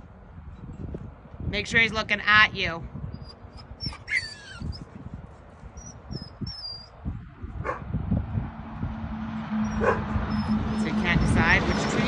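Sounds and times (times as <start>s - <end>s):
wind rumbling on microphone: 0.0s - 12.0s
truck engine drone: 5.3s - 12.0s
dog barking: 7.6s - 7.9s, 9.8s - 10.1s.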